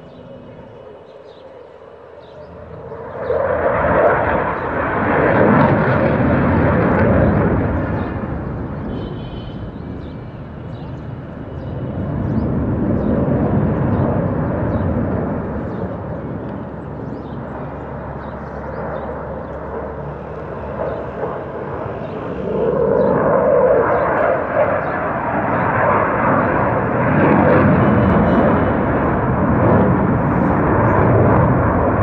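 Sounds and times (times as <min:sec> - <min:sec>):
fighter jet flying past: 0:00.0 - 0:32.0.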